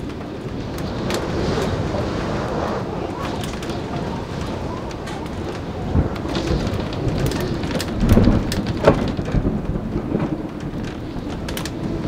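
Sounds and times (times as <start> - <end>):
heavy rain: 0.0 - 12.0
thunder rumbling: 0.0 - 12.0.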